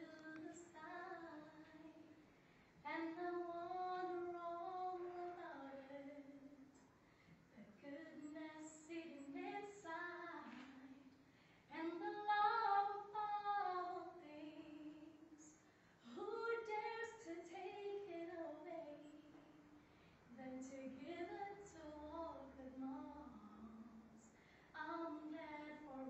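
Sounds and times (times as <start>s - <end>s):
singer breathing: 11.2s - 11.7s, 24.2s - 24.8s.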